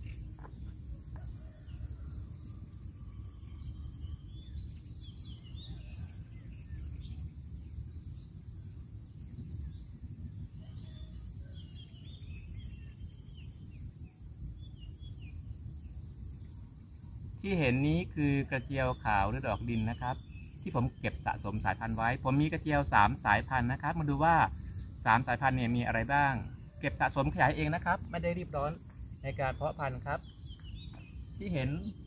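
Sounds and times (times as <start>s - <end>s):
insects trilling: 0.0s - 32.0s
birds chirping: 17.4s - 32.0s.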